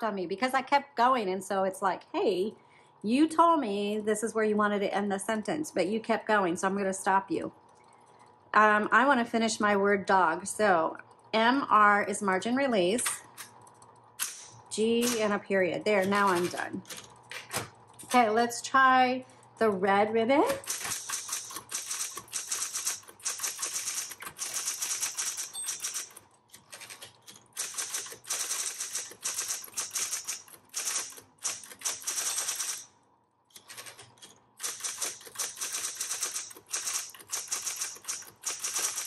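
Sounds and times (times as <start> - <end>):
electric typewriter keystrikes: 13.0 - 18.3, 20.4 - 32.9, 33.5 - 39.0.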